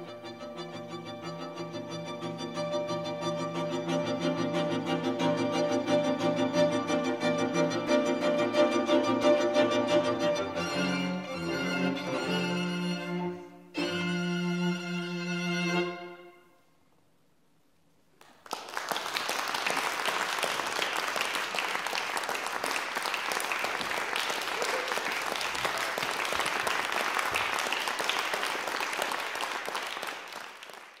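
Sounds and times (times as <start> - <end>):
audience applause: 18.2 - 31.0.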